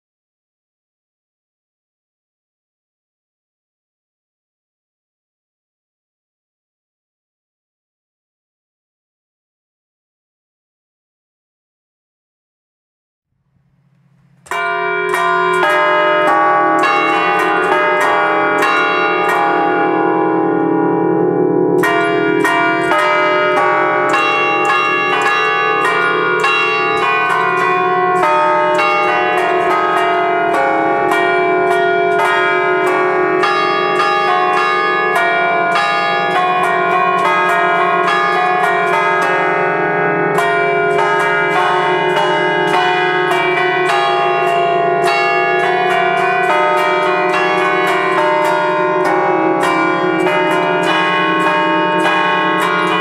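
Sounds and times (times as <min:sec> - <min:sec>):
church bells ringing: 0:14.0 - 0:53.0.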